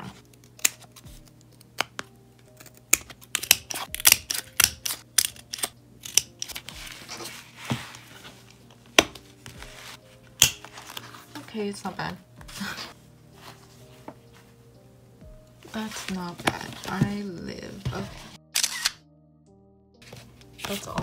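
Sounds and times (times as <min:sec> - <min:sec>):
paper rustling: 0:20.0 - 0:21.0.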